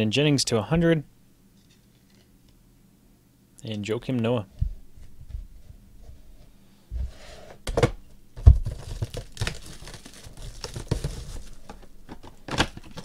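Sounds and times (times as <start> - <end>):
plastic wrap crinkling and tearing: 8.5 - 11.8.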